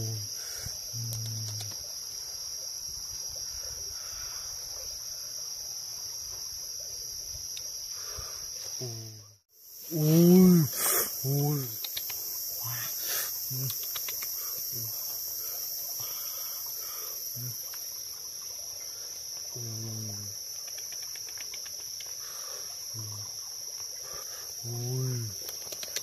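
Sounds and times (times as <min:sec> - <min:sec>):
high-pitched insect buzzing: 0:07.7 - 0:18.1
short low calls: 0:09.9 - 0:15.0.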